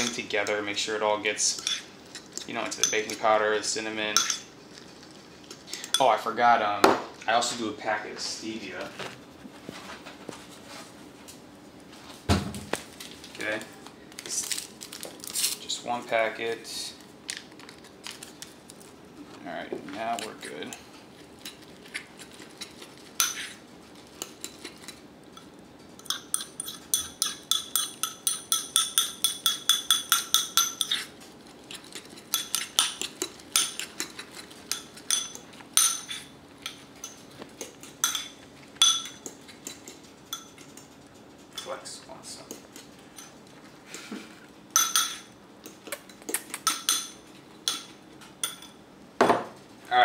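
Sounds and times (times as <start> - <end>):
utensil clinking against ceramic bowl: 0.0 - 0.6, 1.5 - 1.9, 2.6 - 3.3, 4.1 - 4.5, 25.4 - 31.1, 32.1 - 40.9, 41.5 - 41.9, 44.8 - 45.8, 46.6 - 48.8
metal spoon clinking on ceramic bowl: 4.1 - 4.5, 26.0 - 31.1, 34.7 - 37.2, 38.0 - 39.3, 44.8 - 45.3.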